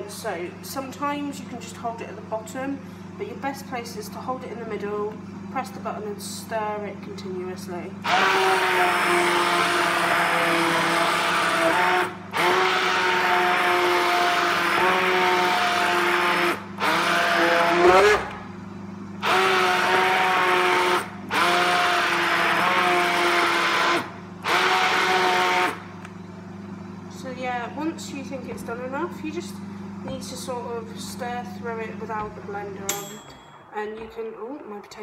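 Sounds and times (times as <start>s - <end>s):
stick blender motor running: 8.0s - 18.5s, 19.1s - 26.2s.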